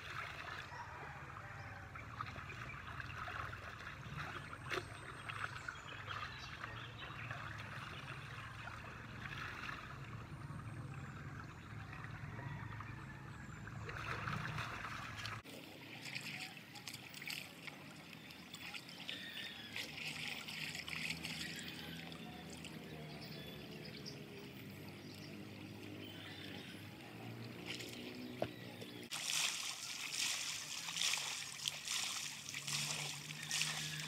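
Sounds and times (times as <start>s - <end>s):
footsteps splashing in water: 1.9s - 10.2s, 13.9s - 23.1s, 27.3s - 34.0s
water splashing scooped by hand: 13.9s - 22.7s, 29.1s - 34.0s
river flowing over stones: 29.1s - 34.0s.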